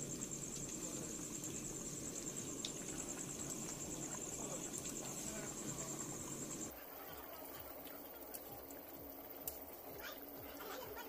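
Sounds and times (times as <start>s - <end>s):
gas burner: 0.0s - 6.8s
high-pitched insect trill: 0.0s - 7.6s
curry boiling in a pan: 0.0s - 11.0s.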